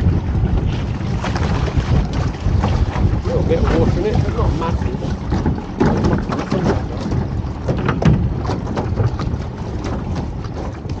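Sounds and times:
wind rumbling on microphone: 0.0s - 11.0s
dinghy knocking and clattering: 5.2s - 10.8s.

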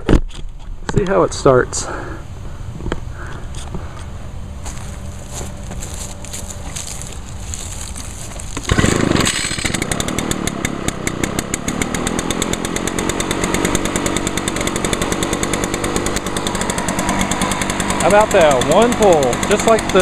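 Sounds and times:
blower engine running: 2.0s - 20.0s
recoil starter pull: 8.6s - 19.0s.

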